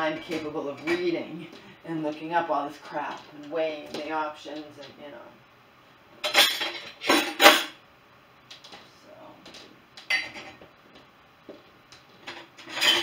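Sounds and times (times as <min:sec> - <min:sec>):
dishes clinking and clattering: 0:06.2 - 0:07.8, 0:10.0 - 0:10.6, 0:12.2 - 0:13.0.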